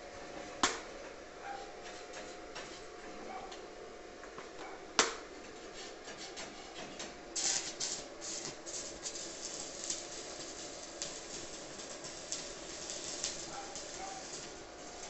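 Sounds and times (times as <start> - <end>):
welding arc crackling and sputtering: 6.2 - 15.0.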